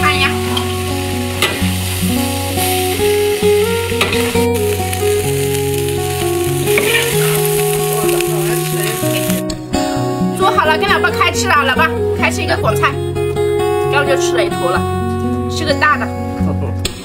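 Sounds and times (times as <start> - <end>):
food sizzling in a wok: 0.0 - 9.4
background music with plucked notes: 0.0 - 17.0.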